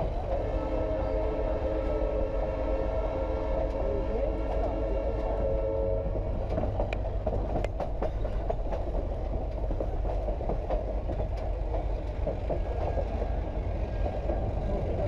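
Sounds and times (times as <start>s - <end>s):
train rumbling on rails: 0.0s - 15.0s
train wheels clicking and knocking: 6.2s - 15.0s.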